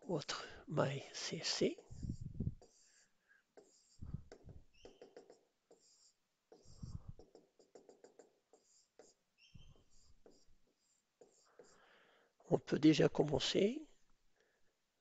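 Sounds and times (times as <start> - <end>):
pen scratching on paper: 1.4 - 11.9
soft low thumps: 1.9 - 2.6.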